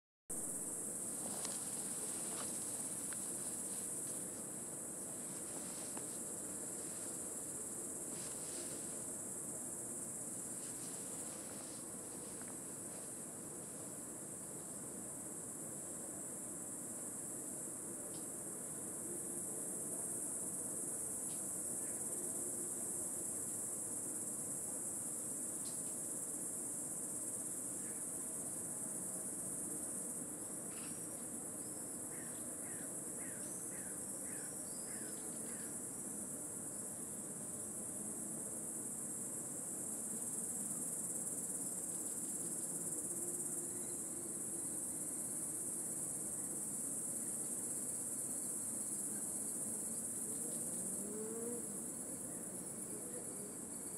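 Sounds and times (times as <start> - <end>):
insects singing high-pitched drone: 14.3 - 53.9.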